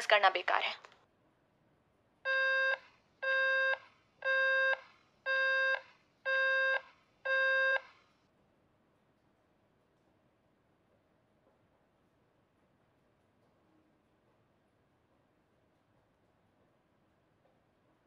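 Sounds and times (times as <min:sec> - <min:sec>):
phone call-ended beeps: 0:02.3 - 0:07.9.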